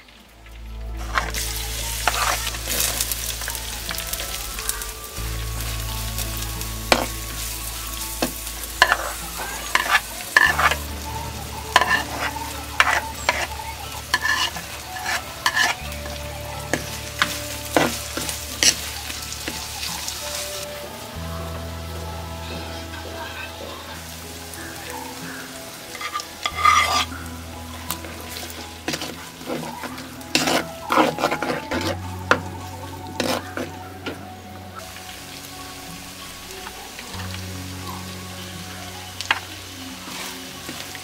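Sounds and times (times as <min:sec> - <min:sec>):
vegetables sizzling in hot oil: 0:00.0 - 0:41.0
wooden spoon scraping pot: 0:02.0 - 0:03.2, 0:08.8 - 0:10.9, 0:11.7 - 0:19.6, 0:25.9 - 0:27.1, 0:28.8 - 0:32.5, 0:33.2 - 0:33.8.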